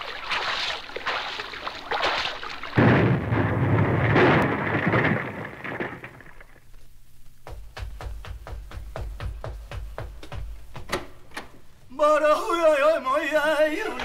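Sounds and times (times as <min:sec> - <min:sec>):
explosion blast: 0:02.8 - 0:06.5.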